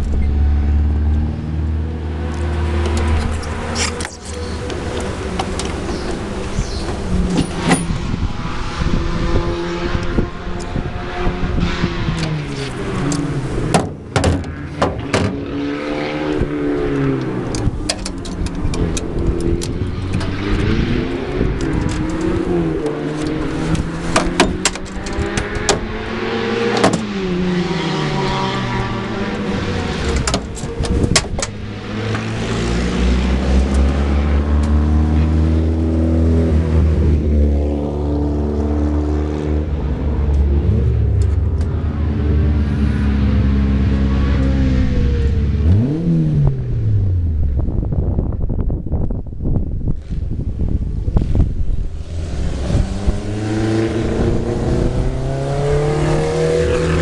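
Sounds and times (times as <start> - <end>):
low engine rumble: 0.0 - 9.0
race cars passing at speed: 0.0 - 47.9, 50.1 - 57.0.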